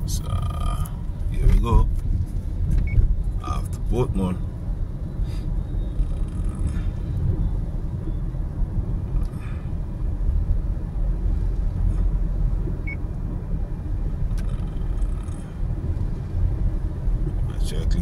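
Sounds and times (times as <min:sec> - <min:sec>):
car engine: 0:00.0 - 0:18.0
car road and tyre noise: 0:00.0 - 0:18.0.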